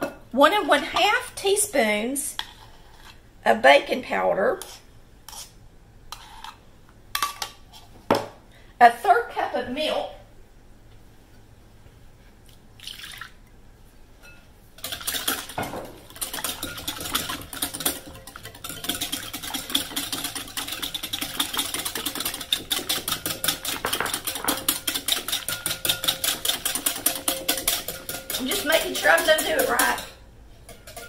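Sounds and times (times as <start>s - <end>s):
whisk beating against glass: 14.2s - 30.1s.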